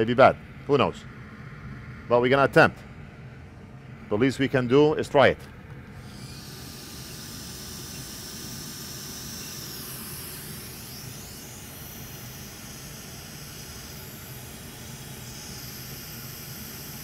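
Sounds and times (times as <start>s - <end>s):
steady airy hiss: 3.8s - 17.0s.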